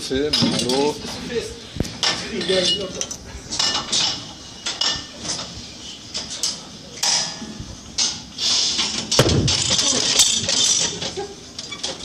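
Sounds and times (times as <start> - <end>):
loud thud: 9.2 - 9.8.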